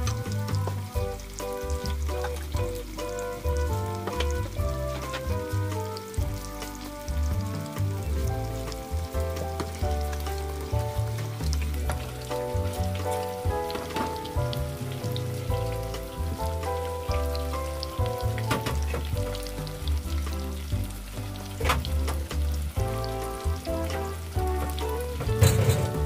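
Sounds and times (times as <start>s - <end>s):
background music with bass line: 0.0s - 26.0s
tofu deep-frying in oil: 0.0s - 26.0s.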